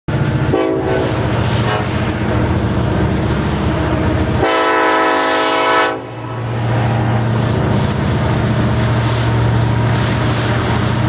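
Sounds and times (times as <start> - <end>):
diesel engine rumbling: 0.1 - 11.0
locomotive air horn blasts: 0.5 - 2.0, 4.4 - 6.2.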